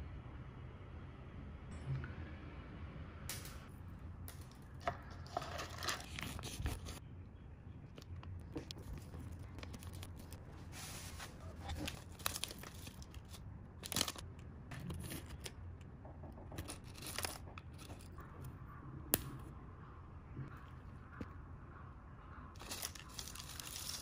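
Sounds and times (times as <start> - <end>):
foil packet crinkling and tearing: 9.0 - 10.7, 11.3 - 14.3, 22.6 - 24.0.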